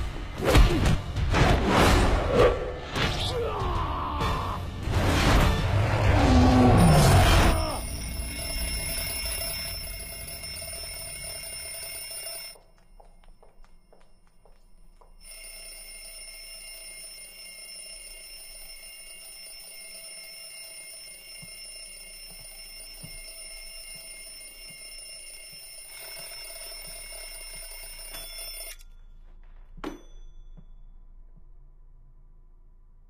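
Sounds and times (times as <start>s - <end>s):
alarm clock ringing: 6.8s - 12.7s, 15.2s - 28.9s.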